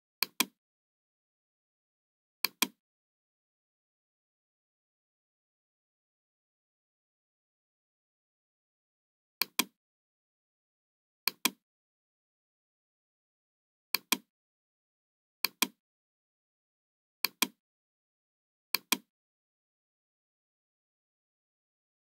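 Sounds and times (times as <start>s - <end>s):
computer mouse clicking: 0.2s - 0.6s, 2.4s - 2.8s, 9.4s - 9.8s, 11.3s - 11.6s, 14.0s - 14.3s, 15.5s - 15.8s, 17.2s - 17.6s, 18.8s - 19.1s.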